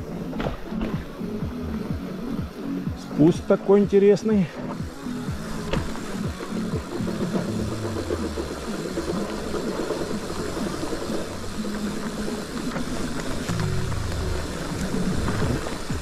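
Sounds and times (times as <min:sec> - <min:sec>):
bike tyres on dirt trail: 0:00.0 - 0:16.0
low motor hum: 0:05.3 - 0:16.0
bike rattling over bumps: 0:05.5 - 0:16.0.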